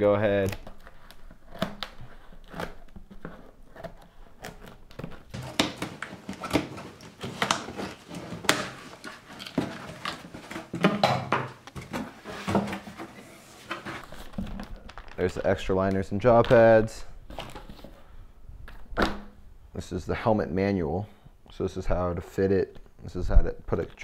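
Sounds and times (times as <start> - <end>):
cardboard flaps rustling: 0.4 - 15.6.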